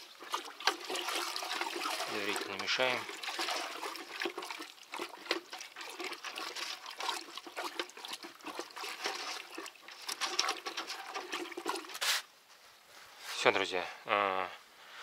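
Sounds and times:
thick liquid sloshing in bucket: 0:00.0 - 0:12.3.

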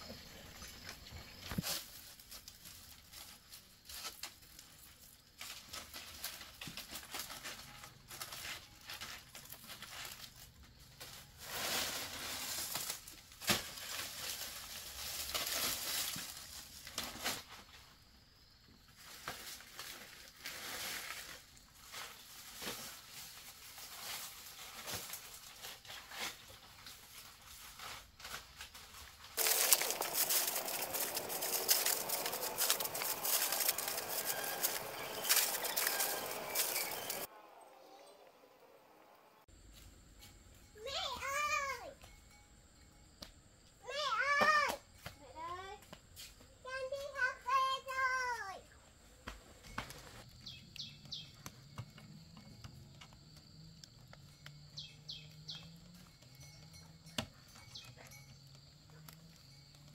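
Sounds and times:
rustling and crinkling: 0:00.0 - 0:18.1, 0:18.7 - 0:37.3.

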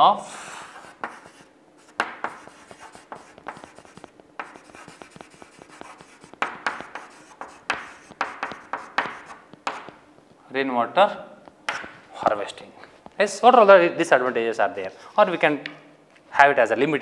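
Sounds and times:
chalk tapping and scraping on chalkboard: 0:00.3 - 0:10.0, 0:11.7 - 0:12.0.

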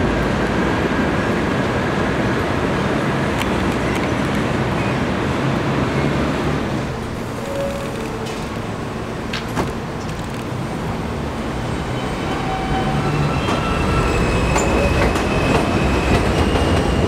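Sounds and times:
train rumbling on steel structure: 0:00.0 - 0:17.0.

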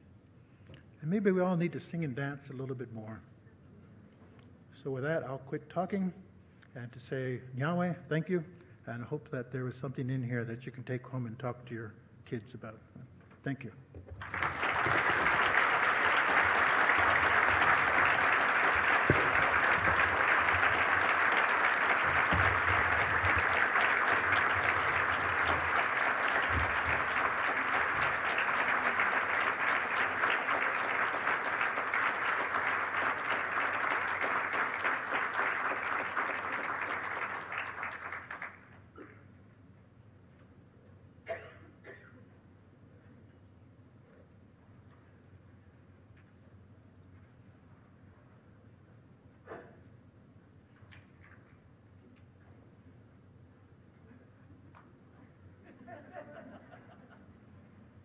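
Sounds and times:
audience applauding: 0:14.2 - 0:38.7.

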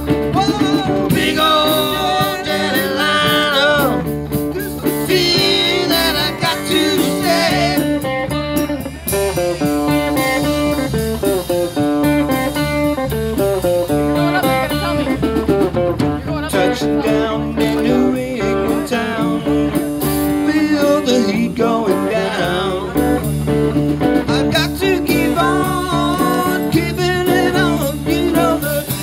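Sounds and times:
blues guitar: 0:00.0 - 0:29.0
person singing: 0:00.3 - 0:08.1, 0:16.4 - 0:23.3, 0:24.3 - 0:29.0.

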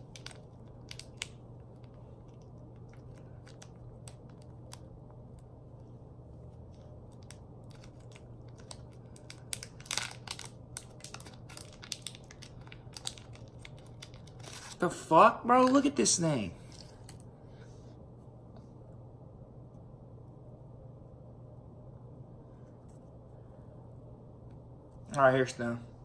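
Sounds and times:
plastic wrapper crinkling and tearing: 0:00.0 - 0:04.9, 0:07.0 - 0:14.8.

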